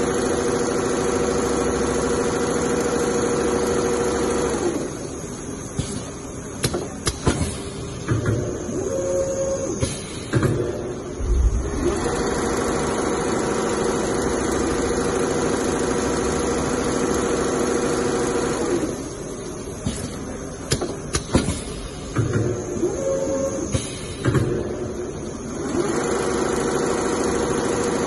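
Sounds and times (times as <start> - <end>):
sewing machine running: 0.0 - 5.0, 11.6 - 19.0, 25.6 - 28.0.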